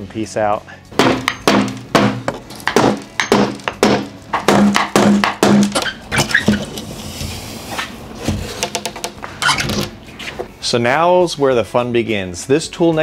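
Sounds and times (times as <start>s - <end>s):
wooden board scraping: 5.8s - 10.5s.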